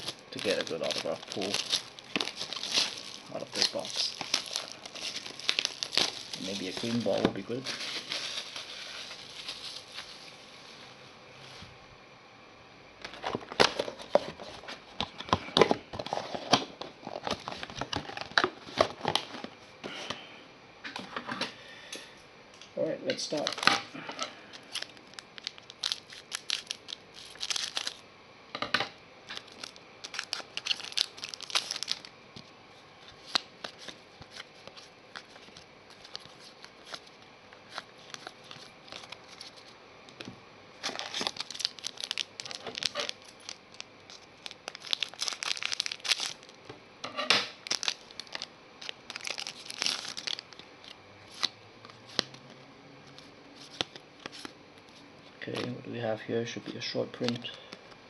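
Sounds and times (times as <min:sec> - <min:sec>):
cards being handled: 0:00.0 - 0:10.1, 0:47.8 - 0:55.7
foil wrapper crinkling: 0:00.0 - 0:10.3, 0:23.3 - 0:23.7, 0:24.5 - 0:28.0, 0:29.2 - 0:46.7, 0:47.5 - 0:52.4, 0:53.1 - 0:55.7, 0:57.1 - 0:58.0.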